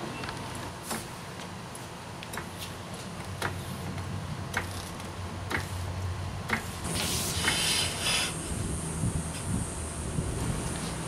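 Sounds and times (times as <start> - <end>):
short hissing: 6.9 - 9.8.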